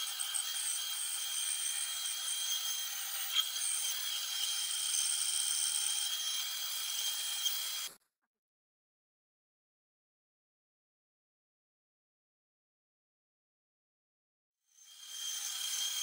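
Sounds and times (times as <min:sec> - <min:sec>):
bandsaw cutting wood: 0:00.0 - 0:07.9, 0:14.9 - 0:16.0.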